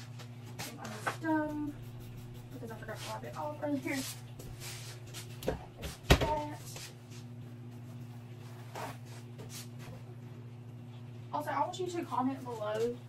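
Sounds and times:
steady low hum: 0:00.0 - 0:13.0
knocks in a kitchen: 0:05.4 - 0:06.5.

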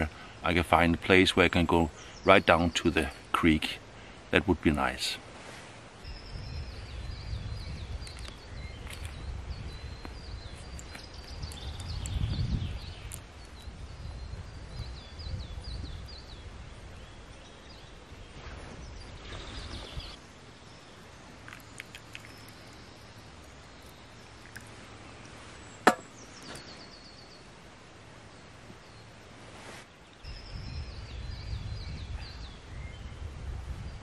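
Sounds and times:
songbirds chirping and singing: 0:00.0 - 0:05.2, 0:06.0 - 0:27.6, 0:30.1 - 0:34.0
gusting wind rumble: 0:06.0 - 0:20.2, 0:30.2 - 0:34.0.

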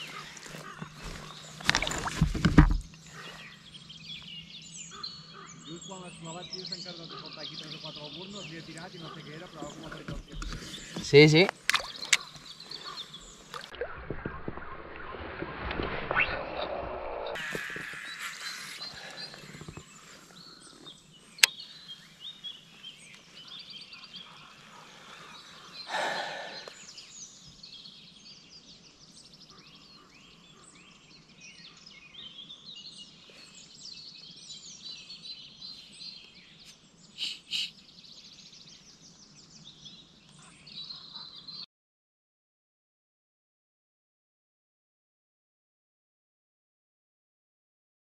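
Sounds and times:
birds chirping and whistling: 0:03.0 - 0:15.2, 0:16.2 - 0:41.6.

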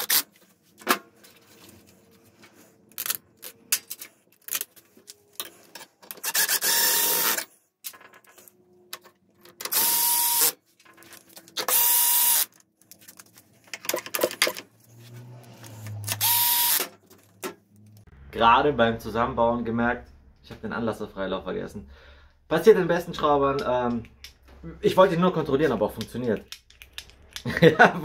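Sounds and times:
small metal parts clicking: 0:26.0 - 0:27.6.

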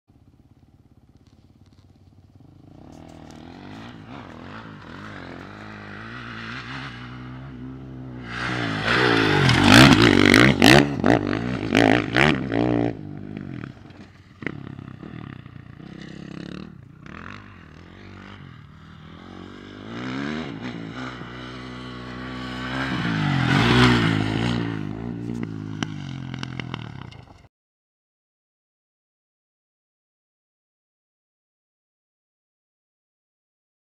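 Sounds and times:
dirt bike engine revving: 0:02.4 - 0:27.4.

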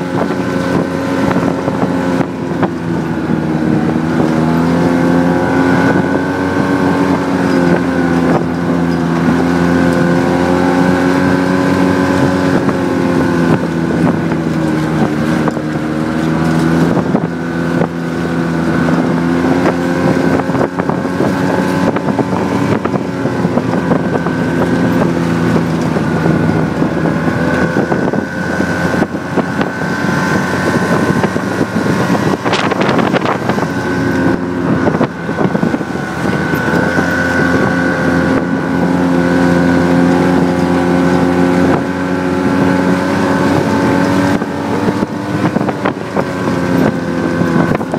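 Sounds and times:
snowmobile engine running: 0:00.0 - 0:47.9
wind buffeting microphone: 0:00.0 - 0:47.9.

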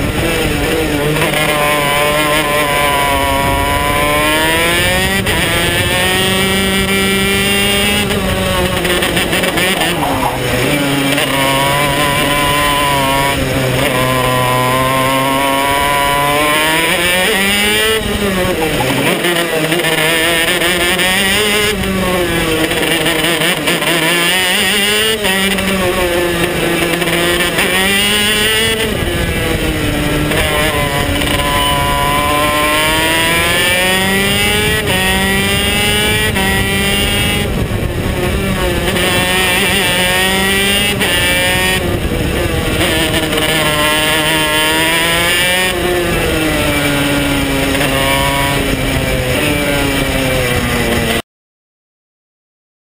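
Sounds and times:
kart engine running hard: 0:00.0 - 0:51.2.

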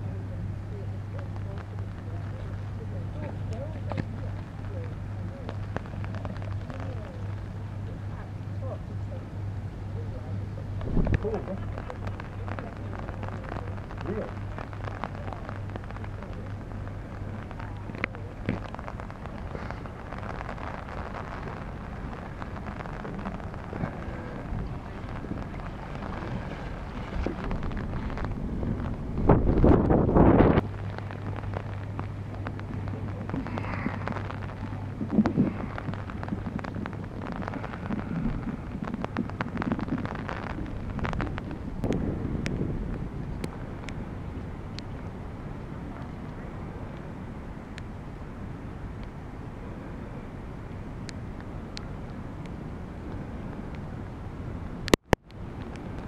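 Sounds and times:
distant voice: 0:00.0 - 0:28.9
low steady hum: 0:00.0 - 0:56.0
rain pattering on street: 0:00.0 - 0:56.0
wind gusting on microphone: 0:00.0 - 0:56.0
water splashes and drips: 0:10.4 - 0:47.9
floodwater sloshing: 0:10.8 - 0:42.0.

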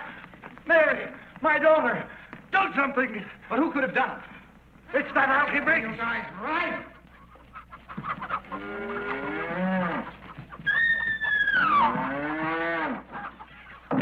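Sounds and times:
cattle mooing: 0:08.5 - 0:10.1, 0:11.4 - 0:13.1.

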